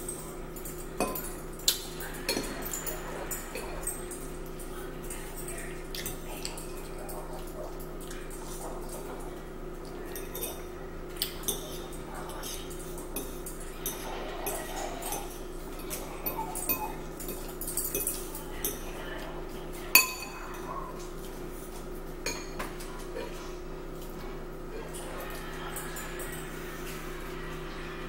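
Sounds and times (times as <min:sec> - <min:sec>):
forks clinking on ceramic bowls: 0:00.0 - 0:24.2, 0:24.8 - 0:27.3
steady low hum: 0:00.0 - 0:28.0.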